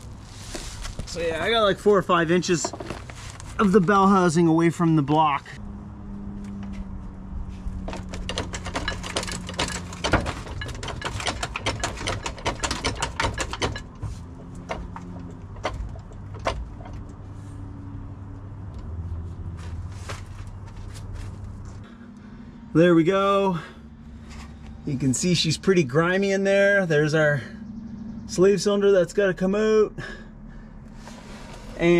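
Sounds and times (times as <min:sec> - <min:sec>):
steady low hum: 0:05.5 - 0:31.9
metal clicks and knocks: 0:07.8 - 0:17.2.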